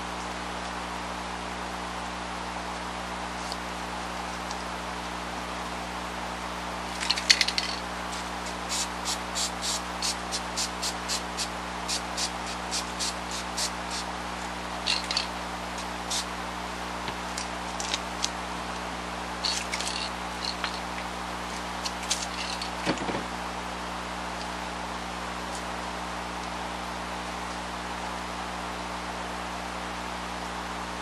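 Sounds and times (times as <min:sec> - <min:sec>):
aerosol can rattling: 0:06.9 - 0:14.0, 0:14.8 - 0:16.3, 0:19.4 - 0:21.1, 0:21.8 - 0:23.3.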